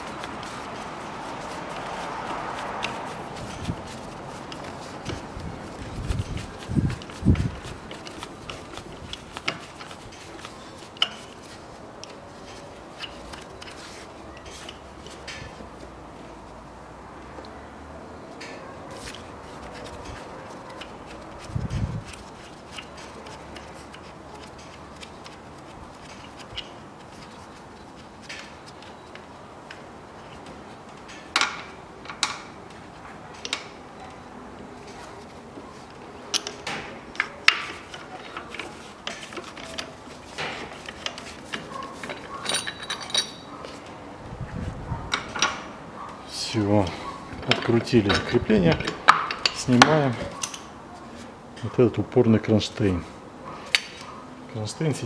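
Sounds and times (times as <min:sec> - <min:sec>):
hand tools clinking on metal: 0:36.3 - 0:43.7, 0:46.9 - 0:50.7.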